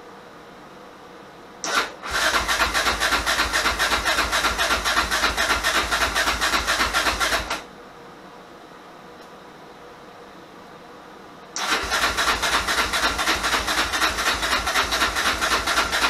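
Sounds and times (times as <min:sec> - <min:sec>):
engine cranking on electric starter: 0:01.6 - 0:07.7, 0:11.6 - 0:16.0.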